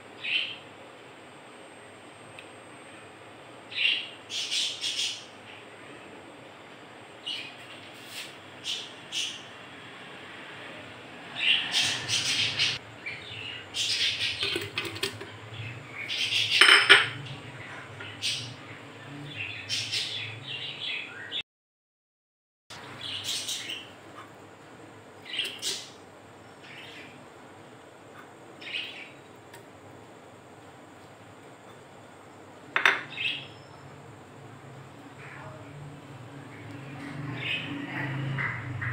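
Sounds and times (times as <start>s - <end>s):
birds chirping: 11.3s - 21.4s, 22.7s - 24.0s, 25.2s - 27.2s, 28.6s - 29.4s, 32.8s - 34.0s, 36.4s - 38.9s
metal pot and utensils clattering: 14.4s - 15.3s, 16.6s - 17.2s.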